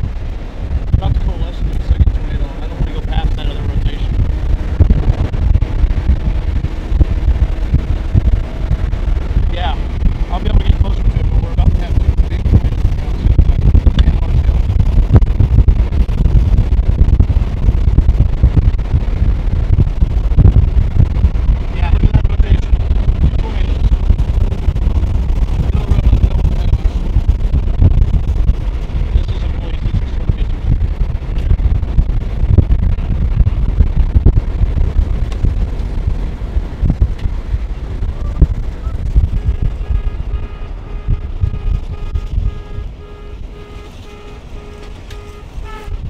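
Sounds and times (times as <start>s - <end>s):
wind buffeting microphone: 0.0s - 46.0s
short electronic warning beeps: 39.6s - 46.0s.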